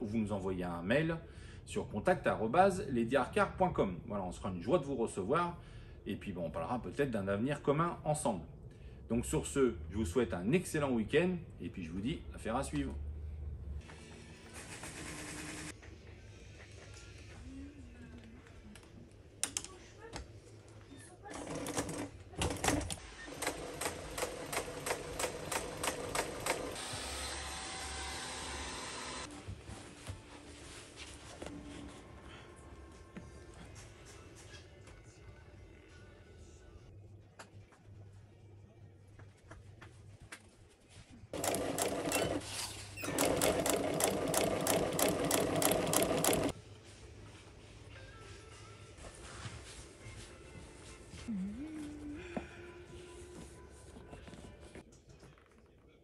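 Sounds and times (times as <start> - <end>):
sewing machine stitching: 21.3 - 26.9, 41.4 - 46.5.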